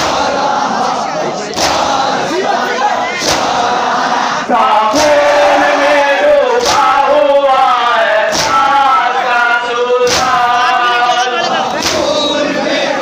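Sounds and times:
crowd noise: 0.0 - 13.0
crowd of men chanting a lament: 0.0 - 13.0
chest-beating slaps: 1.5 - 2.3, 3.1 - 3.9, 4.9 - 5.6, 6.6 - 7.1, 8.3 - 8.9, 10.0 - 10.6, 11.7 - 12.2.

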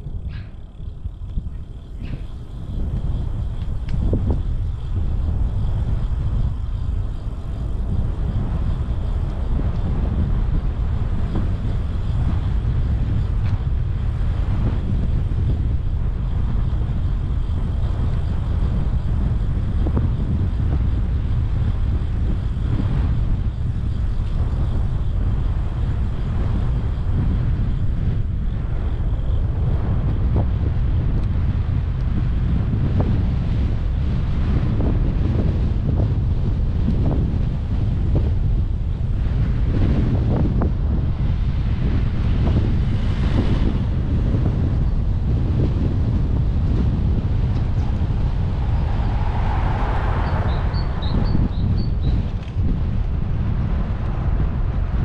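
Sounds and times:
tyres rolling on asphalt: 0.0 - 39.7, 40.6 - 55.0
wind rumble on microphone: 0.0 - 55.0.

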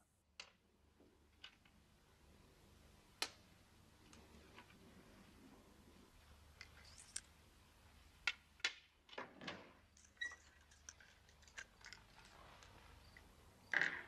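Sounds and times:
small clicks: 6.6 - 7.3, 10.0 - 13.9.

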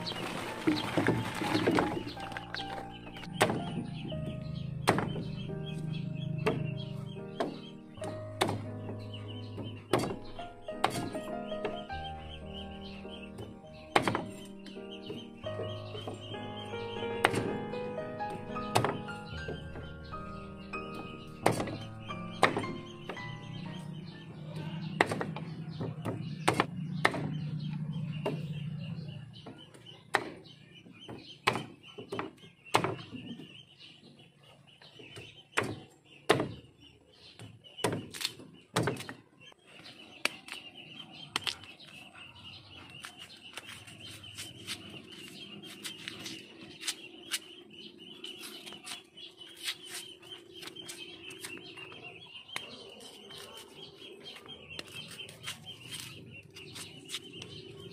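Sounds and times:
high-pitched chirping: 1.4 - 25.0
knife chopping roots on bamboo: 13.9 - 14.5, 25.0 - 27.4, 30.1 - 30.4, 31.4 - 33.3.

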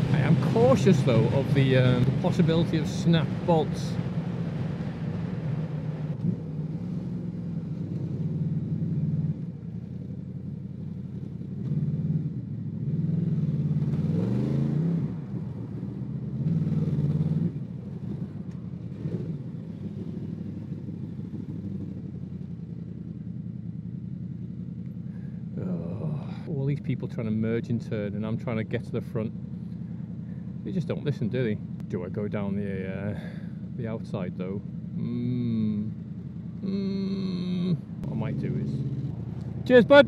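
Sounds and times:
motorcycle engine revving: 0.0 - 9.5, 10.8 - 24.8, 34.4 - 40.0.

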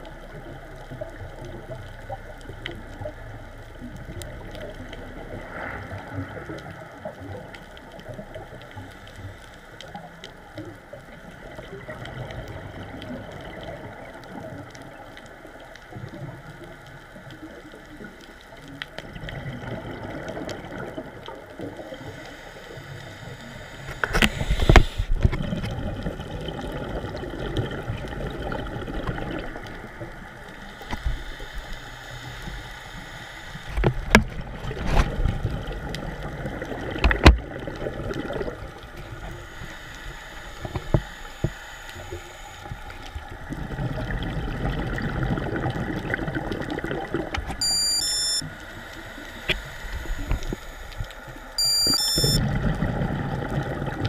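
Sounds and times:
underwater bubbles rushing: 0.0 - 47.6, 52.2 - 54.0
muffled underwater rumble: 0.0 - 54.0
high electronic beeps: 47.6 - 48.5, 51.6 - 52.4.

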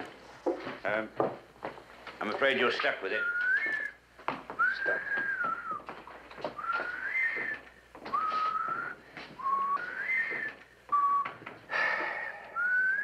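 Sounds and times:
man whistling a slow tune: 3.2 - 4.0, 4.6 - 5.9, 6.5 - 11.4, 12.0 - 13.0.

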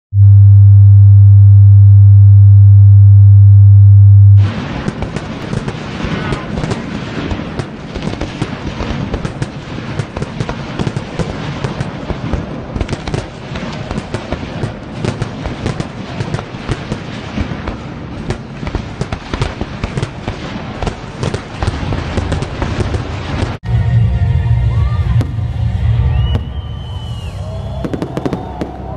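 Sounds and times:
deep firework burst: 4.4 - 18.4, 25.1 - 28.9
fireworks bangs and crackling: 4.4 - 23.6, 26.2 - 28.9.

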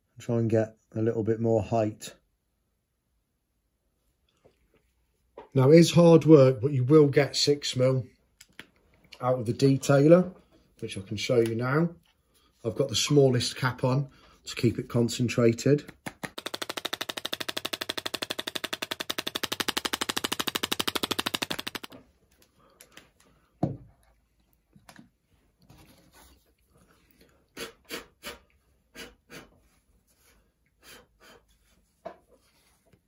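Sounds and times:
static grass applicator clattering: 16.4 - 21.9.

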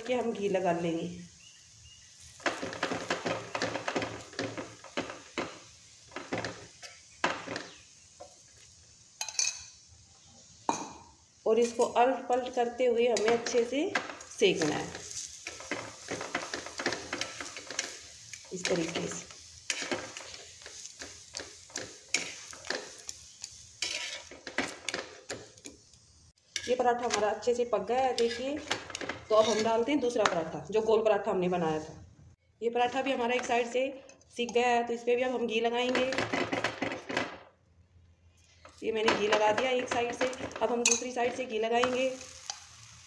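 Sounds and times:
steel spoon scraping on griddle: 13.2 - 27.3, 28.1 - 29.9, 40.8 - 43.0.

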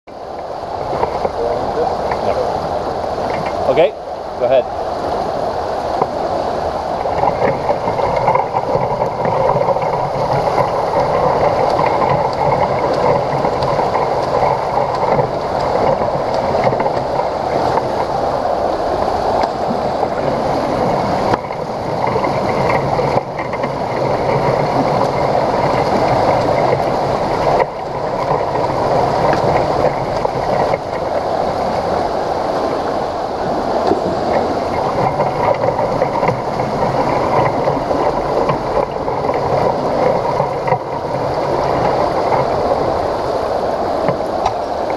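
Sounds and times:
pool water splashing from swimming: 0.1 - 44.9.

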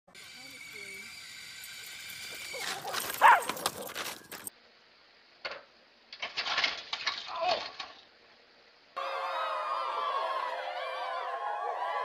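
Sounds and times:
dogs scuffling and clattering: 2.2 - 4.5
dog barking: 2.7 - 4.0.

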